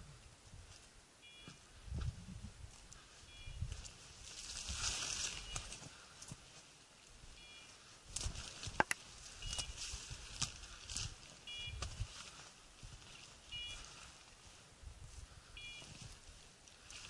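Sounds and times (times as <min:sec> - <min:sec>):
beeper collar beeping: 0:01.2 - 0:01.6, 0:07.4 - 0:07.7, 0:11.4 - 0:11.8, 0:13.5 - 0:13.8, 0:15.6 - 0:16.0
scrub branches scraping and rustling: 0:02.7 - 0:06.8, 0:07.7 - 0:14.8.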